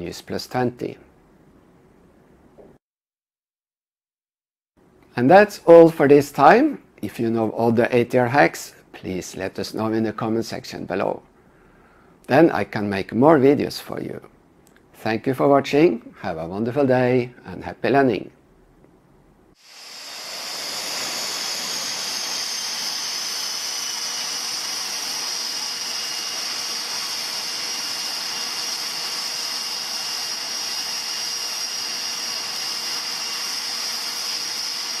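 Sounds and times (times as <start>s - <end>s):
steady rushing hiss: 19.6s - 30.0s
high whine: 19.6s - 35.0s.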